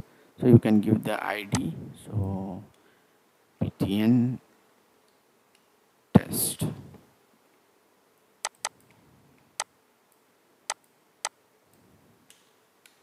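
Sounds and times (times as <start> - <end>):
computer mouse and keyboard clicks: 8.4 - 9.0.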